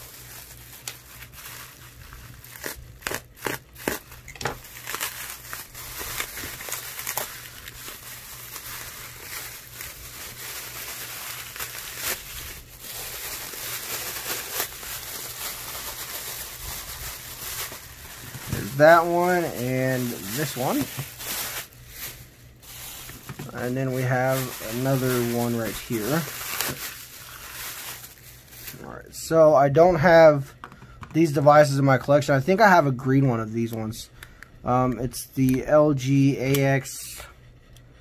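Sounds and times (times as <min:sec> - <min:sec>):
plastic bags crinkling: 0:00.0 - 0:29.3.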